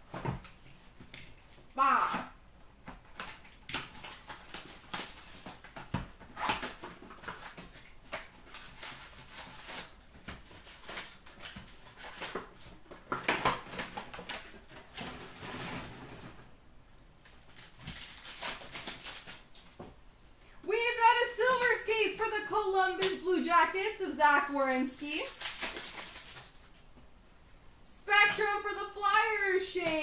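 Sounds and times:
wrapper crinkling: 17.2 - 19.8, 24.6 - 26.9.

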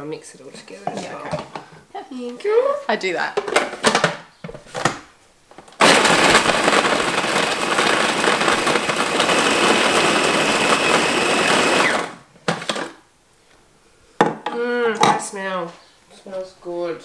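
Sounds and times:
food processor running: 5.8 - 13.0.

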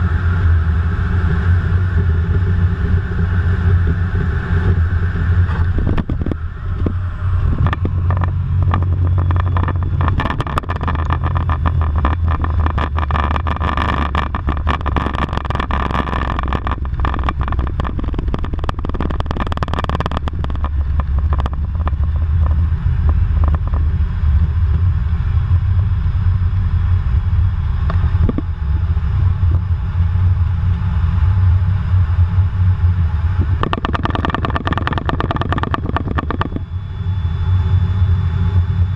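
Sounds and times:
high whine: 0.0 - 38.9
jet engine rumble: 0.0 - 38.9
clicks and rattles: 7.6 - 23.9, 33.4 - 36.7.

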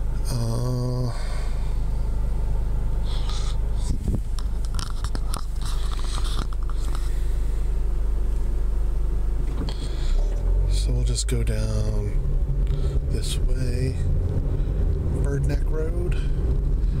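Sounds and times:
car interior low rumble: 0.0 - 17.0
rustles and clicks: 3.1 - 7.2.

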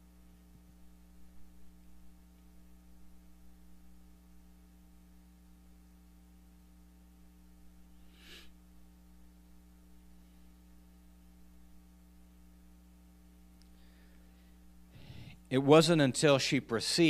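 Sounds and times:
electrical hum: 0.0 - 17.0
breath into microphone: 8.0 - 8.6, 13.7 - 15.5.

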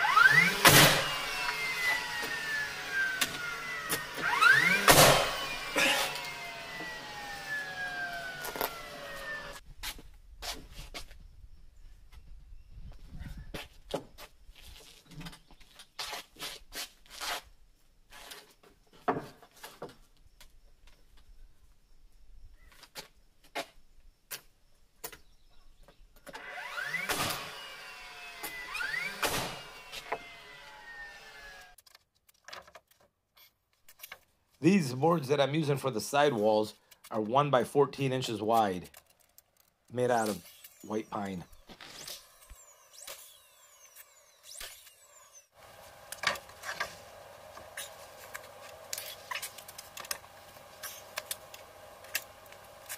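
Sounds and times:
cordless drill driving screws: 0.0 - 9.6, 26.3 - 31.8, 39.6 - 52.9
nail gun motor whine: 0.0 - 9.6, 26.2 - 31.8, 39.0 - 52.9
nail gun firing: 0.2 - 2.3, 3.1 - 6.4, 26.8 - 27.6, 28.4 - 30.2.

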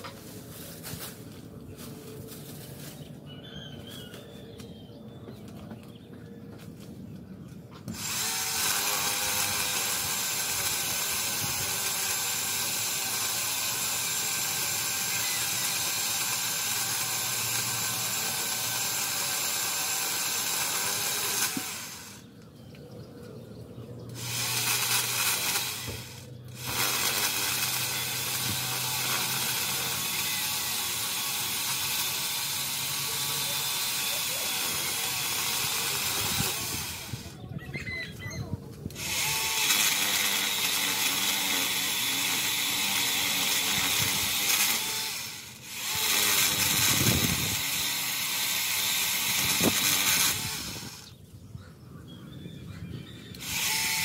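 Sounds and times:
electric chainsaw cutting wood: 7.8 - 22.3, 24.1 - 37.4, 38.9 - 51.2, 53.3 - 54.0.

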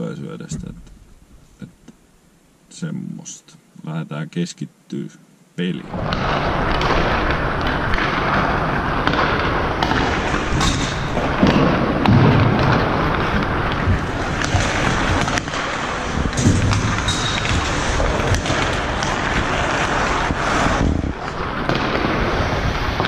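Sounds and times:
skates scraping ice: 5.8 - 23.0
sticks cracking against pucks: 6.7 - 22.4.

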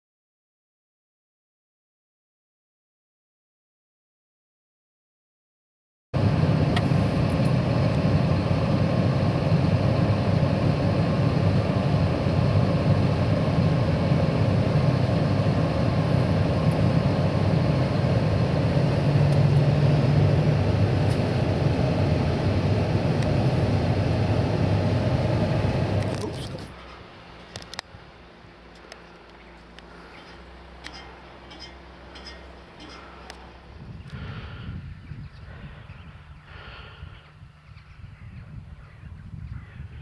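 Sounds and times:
tractor diesel engine running: 6.2 - 40.0.

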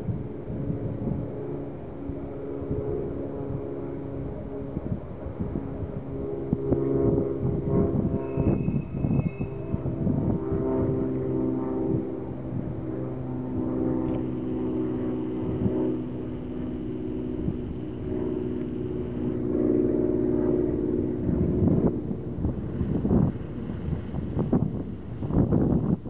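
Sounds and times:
small plane engine and propeller: 0.0 - 26.0
wind rumbling on microphone: 0.0 - 26.0.

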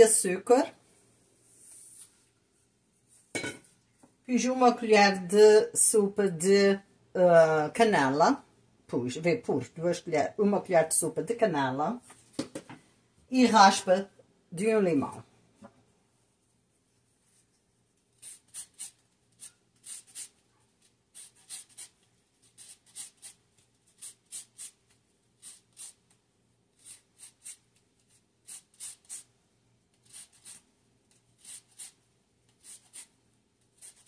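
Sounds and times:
grater scraping lemon: 18.2 - 20.3, 21.2 - 24.8, 25.4 - 26.0, 26.8 - 29.3, 30.0 - 30.6, 31.4 - 33.1.

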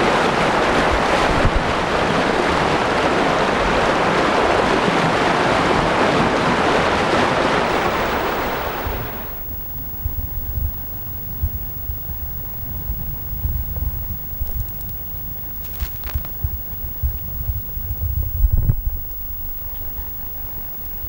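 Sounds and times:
stormwater rushing in a torrent: 0.0 - 7.3.

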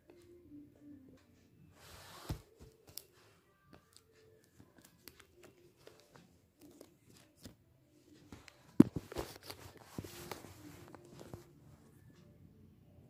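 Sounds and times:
paper rustling: 8.3 - 11.5.

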